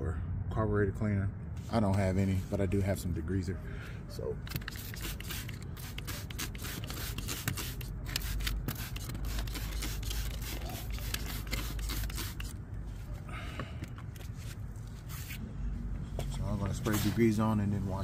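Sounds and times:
spray bottle spritzes: 0:04.5 - 0:12.6.

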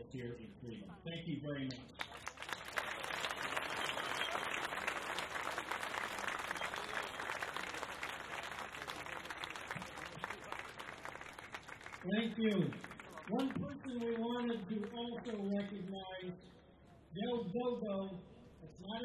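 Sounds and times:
audience applauding: 0:02.0 - 0:15.4.

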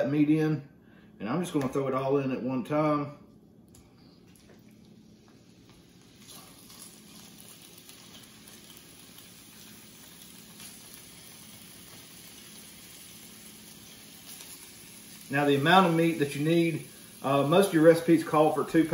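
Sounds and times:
meat sizzling in skillet: 0:04.8 - 0:18.9.

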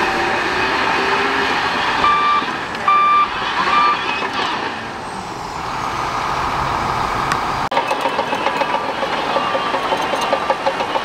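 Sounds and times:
heavy machine engine running: 0:00.0 - 0:11.0
backup alarm beeping: 0:02.0 - 0:04.3.

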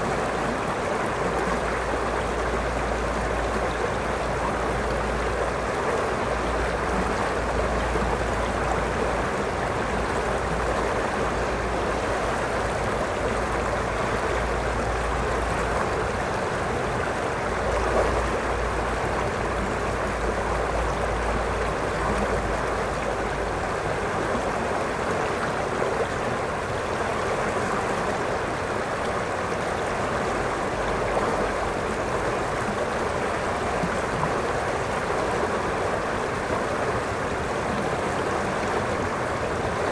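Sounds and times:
river water rushing over rocks: 0:00.0 - 0:39.9.

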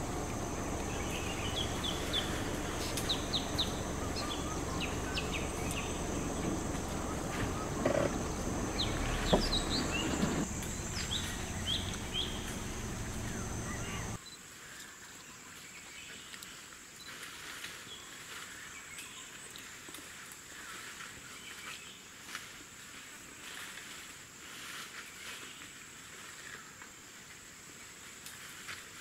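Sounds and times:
high insect drone: 0:00.0 - 0:14.2
low rumbling noise: 0:00.0 - 0:14.2.

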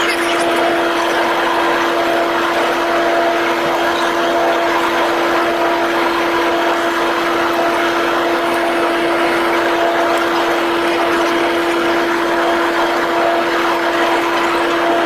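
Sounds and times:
propeller aircraft cabin drone: 0:00.0 - 0:15.0.

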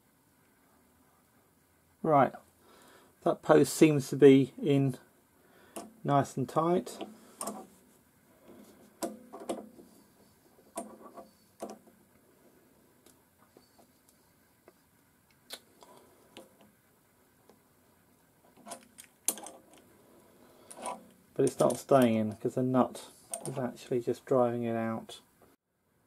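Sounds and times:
metallic clicks of pliers on nut: 0:23.3 - 0:23.6.

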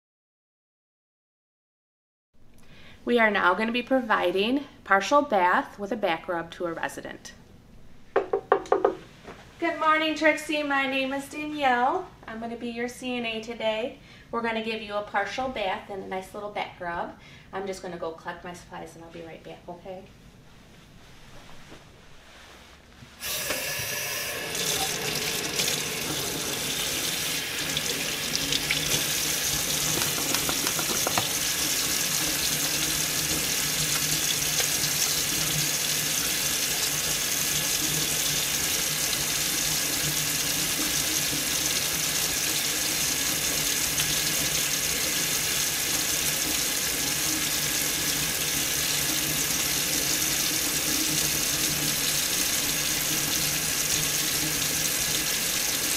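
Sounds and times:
tap water running into sink: 0:23.2 - 0:55.9.

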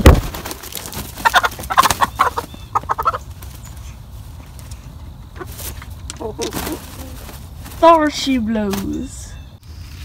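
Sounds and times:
chickens squawking: 0:00.4 - 0:07.8.

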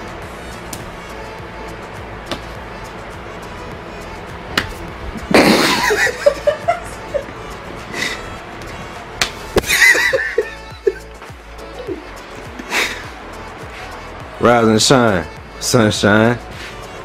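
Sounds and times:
background music: 0:00.0 - 0:17.0
people laughing: 0:05.2 - 0:07.3, 0:09.6 - 0:11.1.

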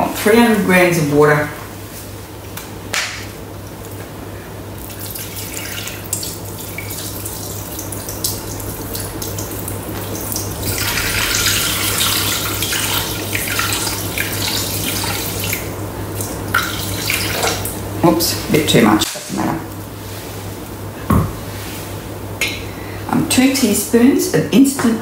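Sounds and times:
water pouring into metal bowl: 0:04.8 - 0:17.7.

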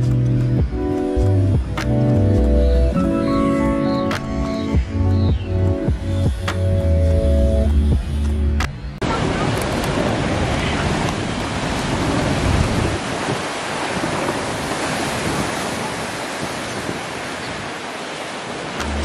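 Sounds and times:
wind rumble on microphone: 0:04.7 - 0:17.9
surf breaking over rocks: 0:09.0 - 0:19.0.

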